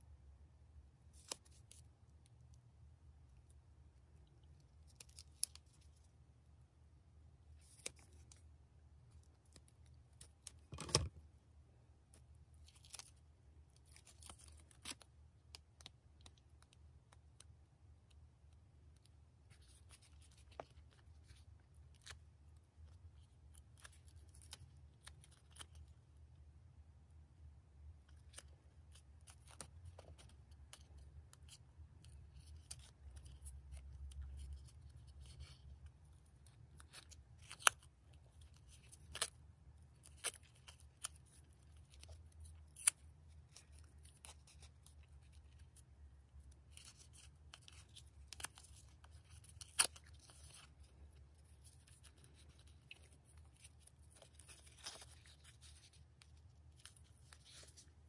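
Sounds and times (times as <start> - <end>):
ribbon rustling: 28.1 - 58.0.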